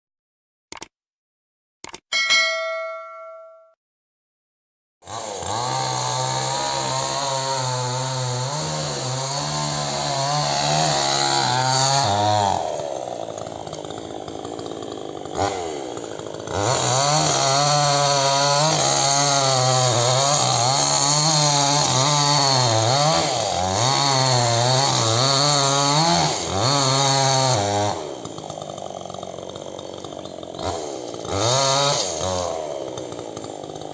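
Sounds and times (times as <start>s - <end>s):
click and ringing ding: 2.1s - 3.8s
chainsaw cutting wood: 5.0s - 33.9s.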